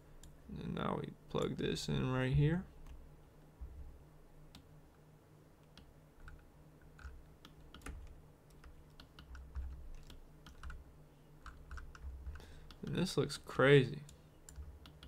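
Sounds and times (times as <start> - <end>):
low steady hum: 0.0 - 15.0
keyboard and mouse clicking: 5.6 - 10.8, 11.4 - 13.0, 14.0 - 15.0.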